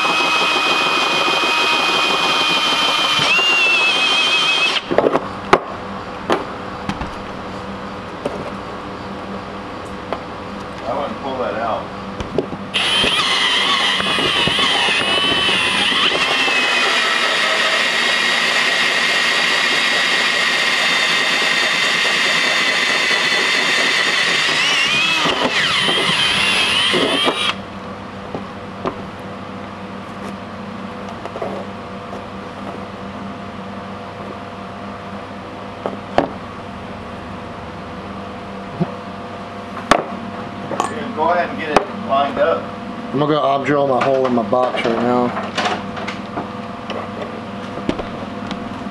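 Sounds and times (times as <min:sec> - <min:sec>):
drill cutting through metal: 0:00.0 - 0:04.9, 0:12.7 - 0:27.6.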